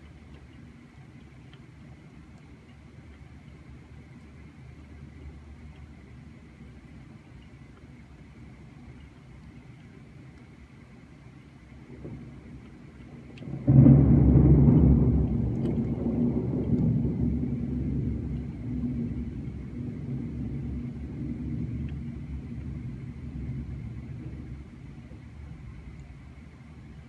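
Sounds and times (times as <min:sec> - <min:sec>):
faint steady rain: 0:00.0 - 0:27.0
thunder rumbling: 0:11.7 - 0:27.0.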